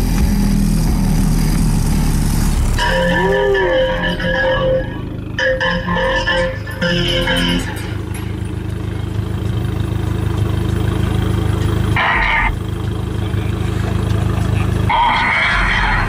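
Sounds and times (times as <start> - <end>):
subwoofer bass drone: 0.0 - 9.0, 11.9 - 12.6, 13.3 - 16.0
short high-pitched burst: 2.8 - 8.0.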